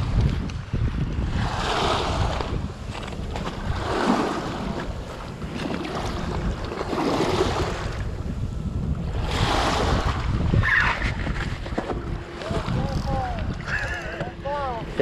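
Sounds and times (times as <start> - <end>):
ocean waves washing on shore: 0.0 - 15.0
wind buffeting microphone: 0.0 - 15.0.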